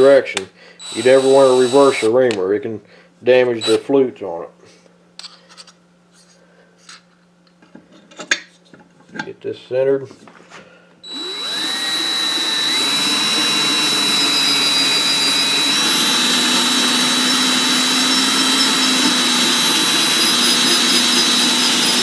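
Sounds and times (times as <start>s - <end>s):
cordless drill whining: 0.8s - 2.2s, 3.6s - 3.8s, 11.0s - 22.0s.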